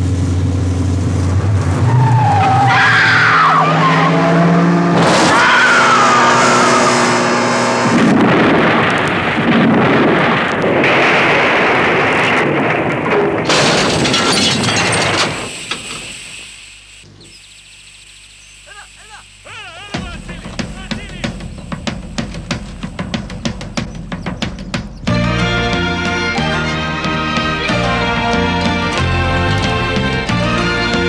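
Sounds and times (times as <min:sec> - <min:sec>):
car engine revving: 0:00.0 - 0:09.5, 0:20.0 - 0:31.0
car crashing down rocky slope: 0:04.9 - 0:06.3, 0:07.9 - 0:16.1
tyres squealing: 0:18.4 - 0:27.8.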